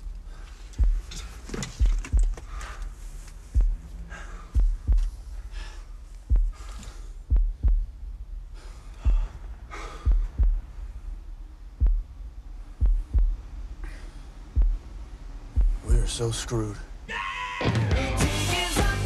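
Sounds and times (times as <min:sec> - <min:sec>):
bass drum pulse: 0:00.8 - 0:01.1, 0:01.8 - 0:02.6, 0:03.4 - 0:05.6, 0:06.2 - 0:11.0, 0:11.7 - 0:13.6, 0:14.5 - 0:16.1.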